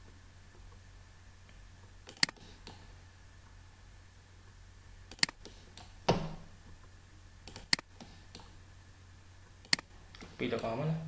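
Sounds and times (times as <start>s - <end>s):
faint low hum: 0.0s - 11.0s
computer mouse clicks: 2.0s - 2.9s, 5.1s - 6.0s, 7.4s - 8.6s, 9.6s - 10.7s.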